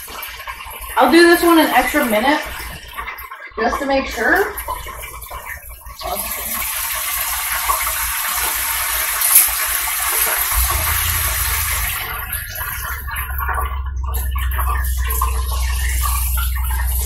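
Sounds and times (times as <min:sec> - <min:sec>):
hot oil sizzling in deep fryer: 0:00.0 - 0:13.6
low hum: 0:10.5 - 0:17.0.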